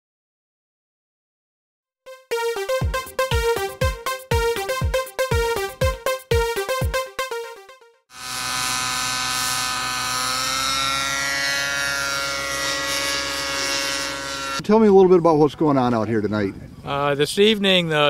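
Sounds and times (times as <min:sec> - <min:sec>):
electronic news jingle: 0:02.1 - 0:08.0
model helicopter whine: 0:08.1 - 0:14.6.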